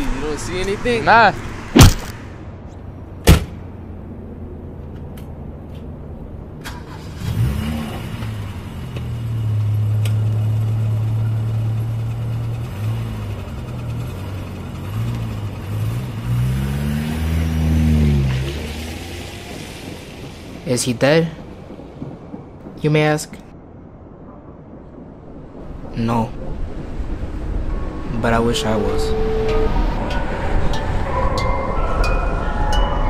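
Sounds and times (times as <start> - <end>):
car engine starting and revving: 6.6 - 20.5.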